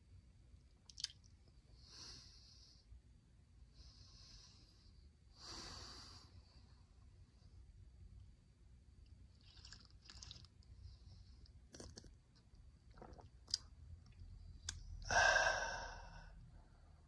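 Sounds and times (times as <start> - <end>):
swallowing and lip-smacking: 0.8 - 1.3, 9.4 - 10.6, 11.7 - 12.2, 12.9 - 14.8
man slurping from a mug: 9.4 - 10.5, 11.7 - 12.1, 13.0 - 13.6
man breathy ahh: 15.0 - 16.4.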